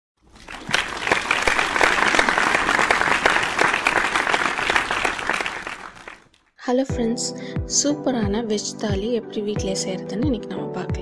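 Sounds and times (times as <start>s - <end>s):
crowd applauding: 0.2s - 6.4s.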